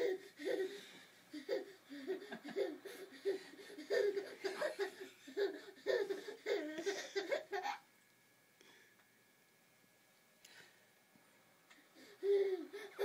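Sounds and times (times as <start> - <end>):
baby laughing: 0.0 - 7.8.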